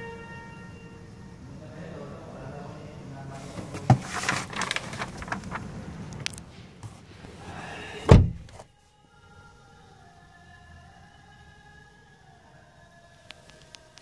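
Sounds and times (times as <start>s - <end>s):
outside noise: 0.0s - 14.0s
car door shutting: 8.0s - 8.6s.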